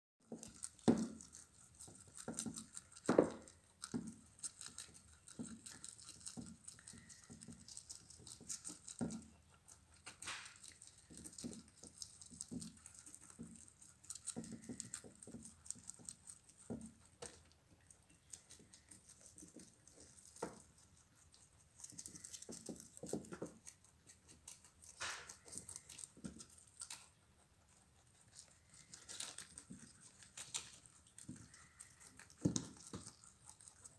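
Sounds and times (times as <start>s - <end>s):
rabbits crunching leaves: 0.2s - 33.9s
leaves rustling and tearing: 28.3s - 33.9s.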